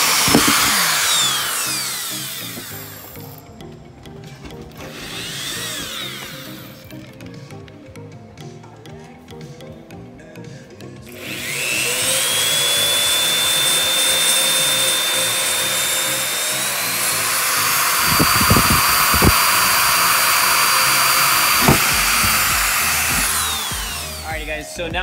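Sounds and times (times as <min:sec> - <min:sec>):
dull knocks: 0:00.0 - 0:01.0, 0:17.9 - 0:19.8, 0:21.4 - 0:23.9
power drill whining through metal: 0:00.0 - 0:07.4, 0:11.0 - 0:24.6.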